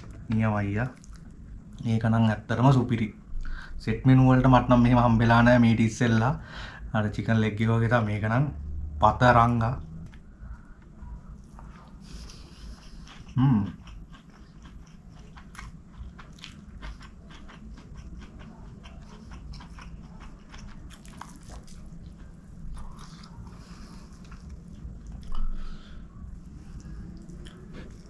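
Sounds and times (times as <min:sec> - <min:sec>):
chewing and mouth smacks: 0:00.0 - 0:01.8, 0:10.0 - 0:25.7, 0:26.3 - 0:28.0.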